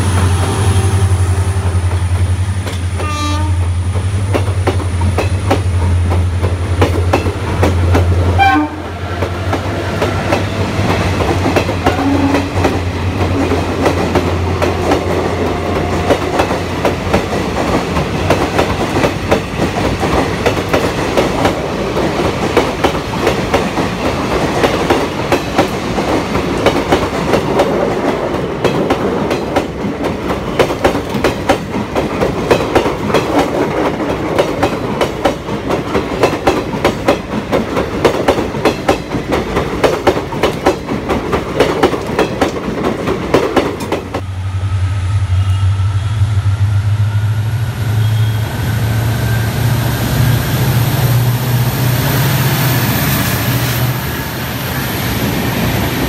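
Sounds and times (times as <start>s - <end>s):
train wheels clicking over rail joints: 1.6s - 8.4s, 9.2s - 44.2s.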